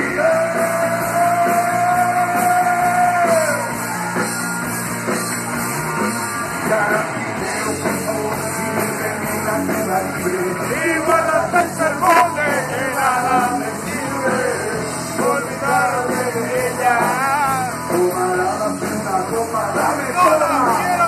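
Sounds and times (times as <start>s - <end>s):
live rock band playing: 0.0s - 21.0s
person singing: 6.6s - 21.0s.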